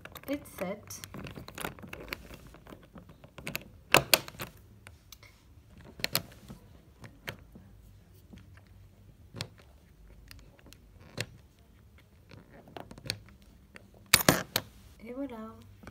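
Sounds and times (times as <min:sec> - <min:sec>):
metal zipper pullers clacking: 0:14.1 - 0:14.6.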